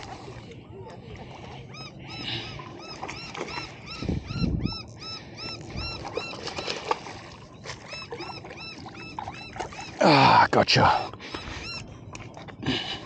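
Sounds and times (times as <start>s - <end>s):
high-pitched animal calls: 1.7s - 6.8s, 7.8s - 10.3s, 11.2s - 11.9s.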